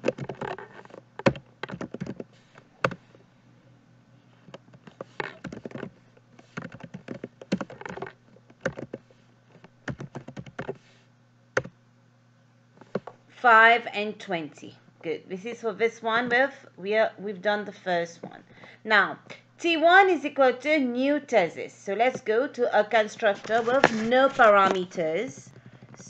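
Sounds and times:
typing on keyboard: 1.2s - 2.2s, 5.0s - 9.0s, 9.9s - 10.8s.

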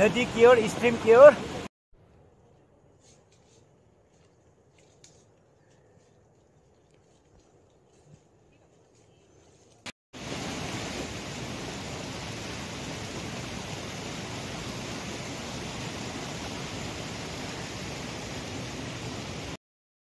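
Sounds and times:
rocky mountain stream rushing: 0.0s - 1.7s, 10.2s - 19.6s.

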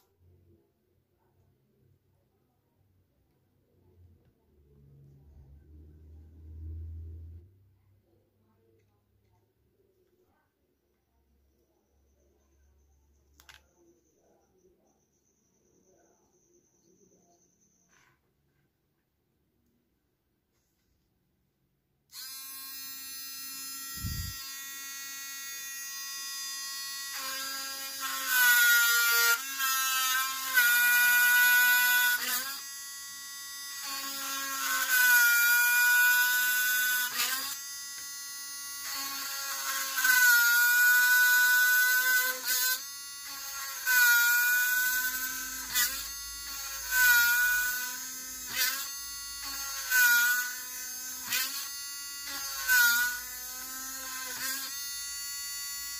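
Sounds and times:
small electric motor whining: 22.1s - 55.9s.

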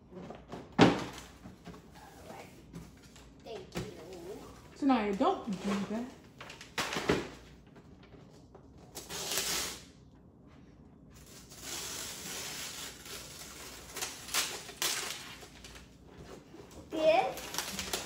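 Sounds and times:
wrapping paper tearing and rustling: 8.8s - 10.0s, 11.2s - 18.0s.

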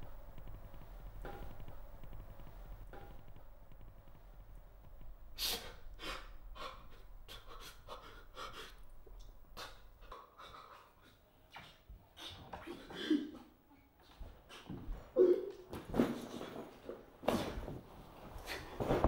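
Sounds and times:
man panting heavily: 6.0s - 8.8s.

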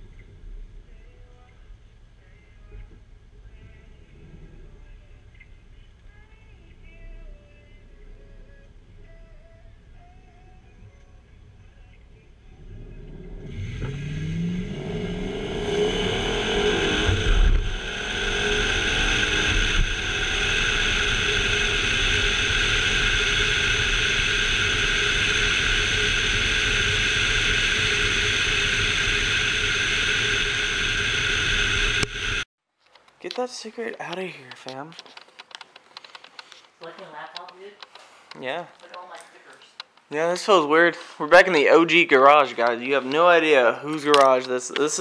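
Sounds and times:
car engine accelerating hard: 12.5s - 32.4s
wind rushing: 13.1s - 32.4s.

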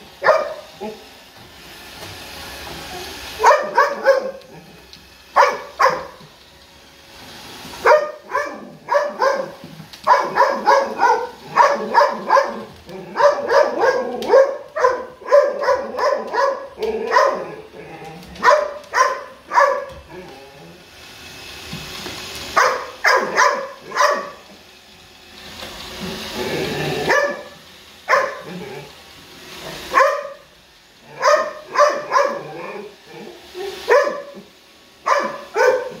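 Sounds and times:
dog barking: 0.2s - 1.0s, 3.4s - 4.5s, 5.4s - 6.2s, 7.8s - 17.6s, 18.4s - 19.9s, 22.6s - 24.4s, 27.1s - 28.6s, 29.9s - 30.4s, 31.1s - 32.6s, 33.9s - 34.4s, 35.0s - 36.0s.

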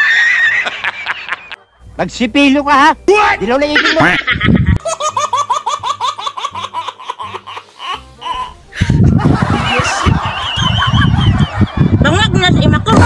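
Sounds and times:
baby laughing: 3.7s - 10.1s
noisy background sound: 7.6s - 13.0s.

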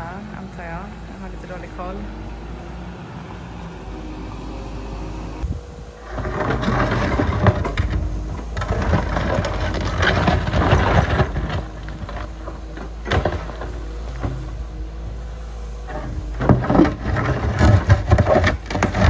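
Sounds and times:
diesel engine running: 0.0s - 19.0s
bucket scraping soil and stones: 5.4s - 19.0s.

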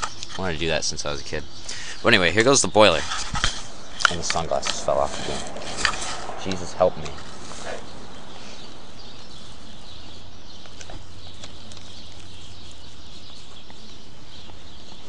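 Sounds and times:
low hum: 2.2s - 10.8s.

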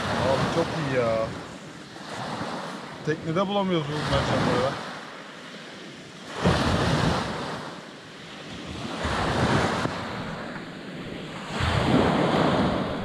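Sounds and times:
waves washing up pebble beach: 0.0s - 13.0s
wind on microphone: 5.7s - 13.0s.

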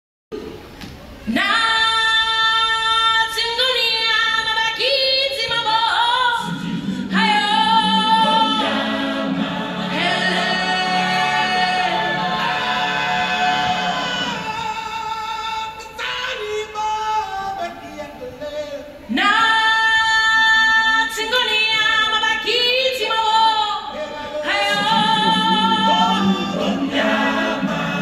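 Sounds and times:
lower held vocal part: 23.8s - 28.0s.

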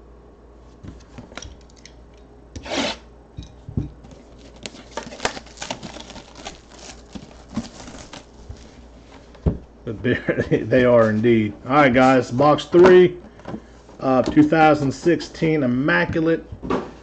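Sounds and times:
blade scraping cardboard box: 2.6s - 3.1s
wrapper crinkling: 4.1s - 8.9s.

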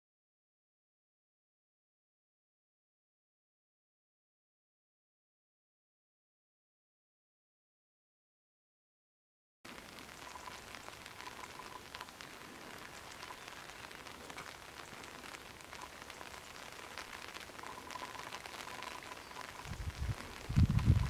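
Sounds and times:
light rain pattering: 9.7s - 21.0s.

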